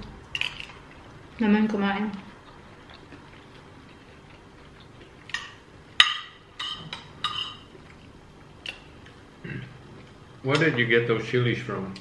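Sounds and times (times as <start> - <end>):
cutlery clinking on plates: 5.3 - 7.7.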